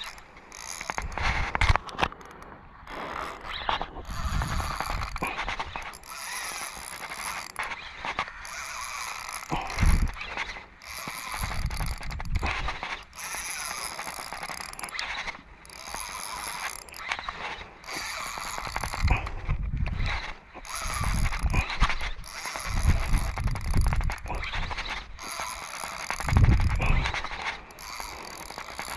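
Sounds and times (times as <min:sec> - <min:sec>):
fishing reel whirring: 0:00.0 - 0:28.9
wind buffeting microphone: 0:03.7 - 0:05.9, 0:09.5 - 0:10.3, 0:18.7 - 0:25.2, 0:26.2 - 0:27.3.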